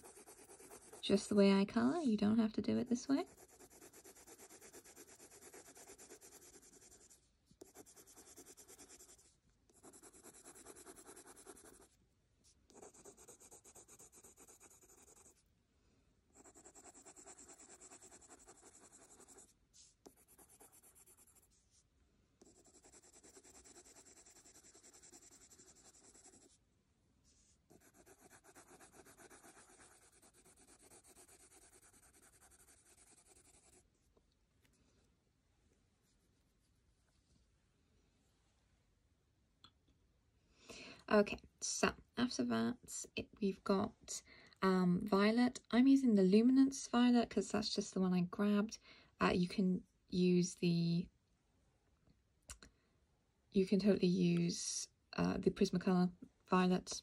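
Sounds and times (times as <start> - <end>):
coloured pencil scratching on paper: 0.0 - 2.0, 3.2 - 12.0, 12.7 - 15.4, 16.3 - 21.8, 22.4 - 26.6, 27.4 - 33.8.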